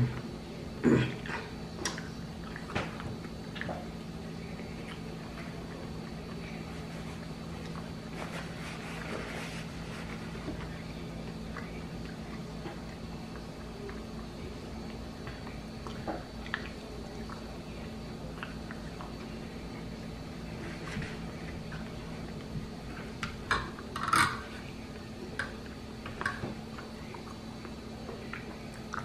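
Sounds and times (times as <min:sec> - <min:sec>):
steady low hum: 0:00.0 - 0:29.0
paper napkin rustling: 0:06.5 - 0:10.8.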